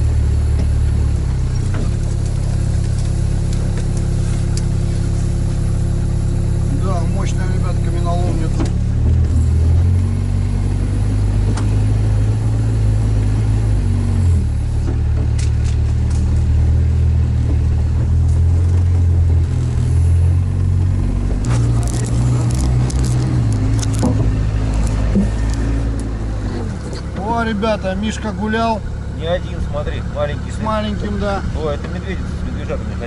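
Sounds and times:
diesel engine humming: 0:00.0 - 0:33.0
sharp clicks and knocks: 0:21.2 - 0:27.4.

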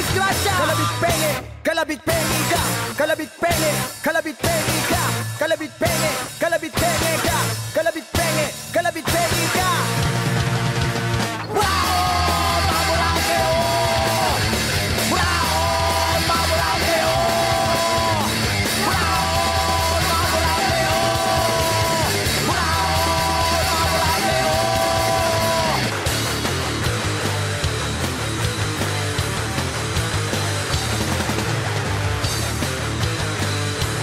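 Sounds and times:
distorted guitar: 0:00.0 - 0:34.0
shouted vocals: 0:11.4 - 0:25.9.

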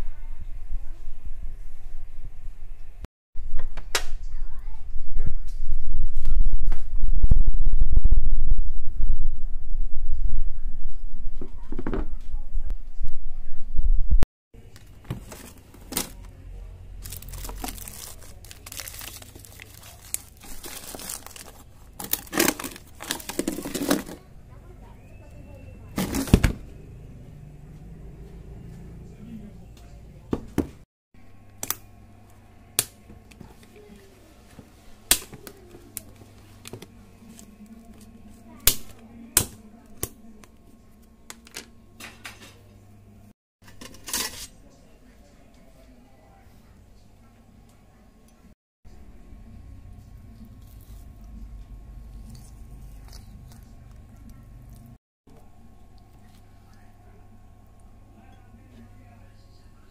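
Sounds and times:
plastic bags crinkling: 0:17.0 - 0:24.2
faint steady hum: 0:31.2 - 0:59.9.

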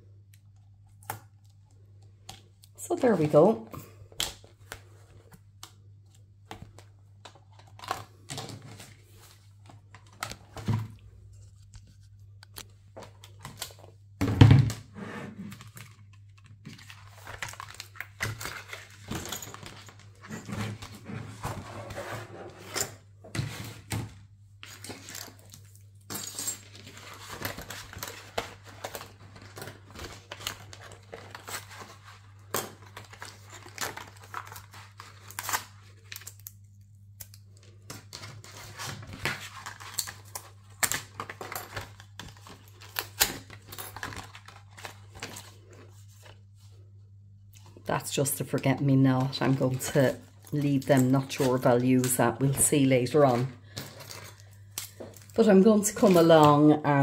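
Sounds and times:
paper rustling and crinkling: 0:04.2 - 0:14.0, 0:15.4 - 0:36.8, 0:37.4 - 0:46.9.

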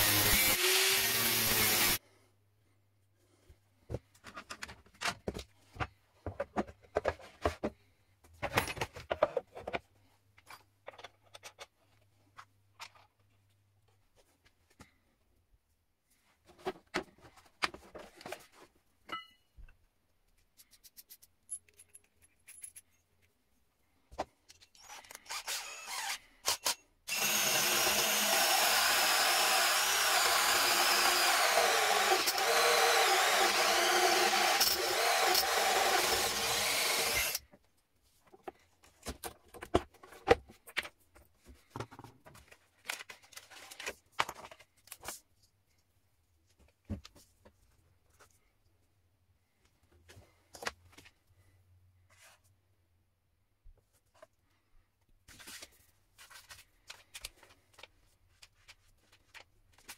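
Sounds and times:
cordless drill cutting wood: 0:00.0 - 0:02.0, 0:24.9 - 0:37.4.

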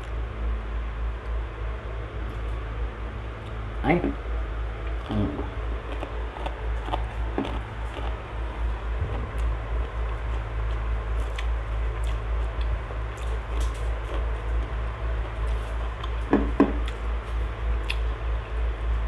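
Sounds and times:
low steady hum: 0:00.0 - 0:19.0
chewing: 0:04.9 - 0:18.2.

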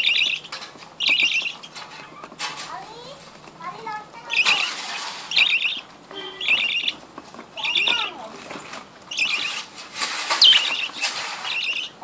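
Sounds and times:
budgerigars chattering: 0:00.0 - 0:02.4, 0:04.2 - 0:07.0, 0:07.6 - 0:08.2, 0:09.1 - 0:09.7, 0:10.3 - 0:12.0.

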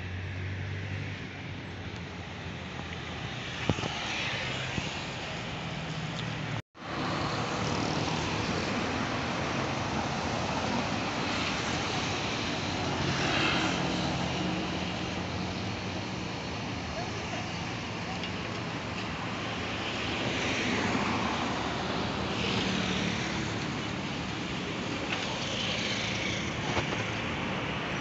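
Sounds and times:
traffic on wet street: 0:00.0 - 0:28.0.

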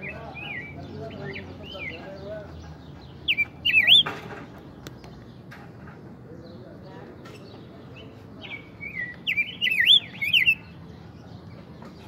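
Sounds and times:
bird singing warbling whistle: 0:03.3 - 0:04.1, 0:08.5 - 0:10.6.

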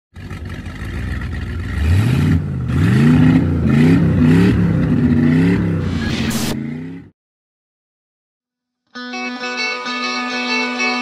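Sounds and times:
engine revving: 0:00.2 - 0:07.1.

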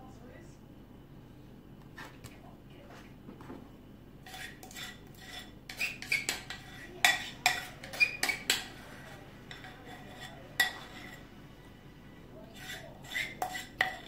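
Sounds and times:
metal spoon scraping ceramic bowl: 0:04.2 - 0:11.3, 0:12.5 - 0:14.0.

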